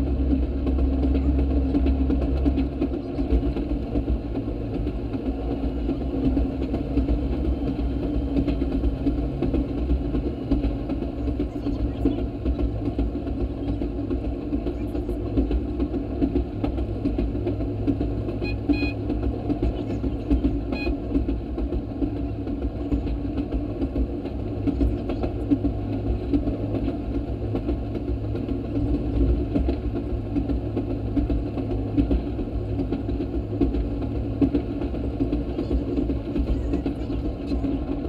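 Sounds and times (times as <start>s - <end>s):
rail motorcar engine drone: 0.0s - 38.0s.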